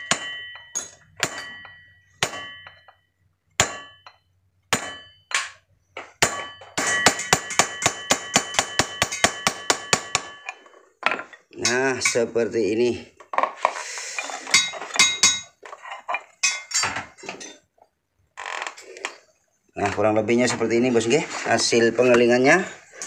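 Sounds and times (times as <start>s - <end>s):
hammer clanging on steel: 0.0s - 3.0s, 3.6s - 12.2s, 14.4s - 15.6s.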